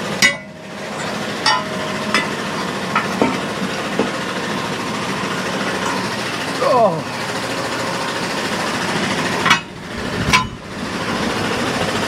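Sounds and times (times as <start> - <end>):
metal clank: 0.0 - 4.7, 5.6 - 6.4, 9.4 - 10.7
steady background noise: 0.0 - 12.0.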